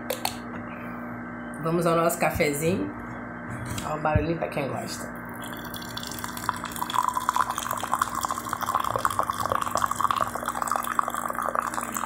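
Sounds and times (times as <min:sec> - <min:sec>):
coffee pouring into a mug: 0:05.3 - 0:12.0.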